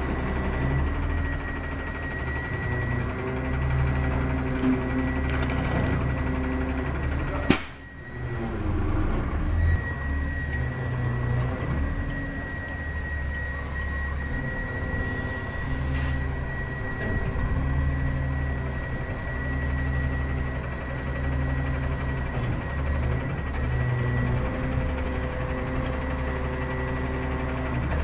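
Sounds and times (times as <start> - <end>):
diesel engine rumble: 0.0 - 28.0
steady high whine: 5.9 - 22.2.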